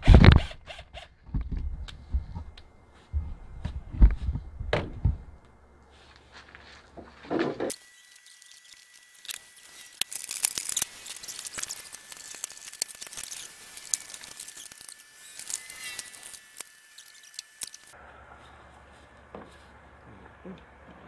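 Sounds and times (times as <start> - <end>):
cardboard packaging rustling: 7.7 - 18.0.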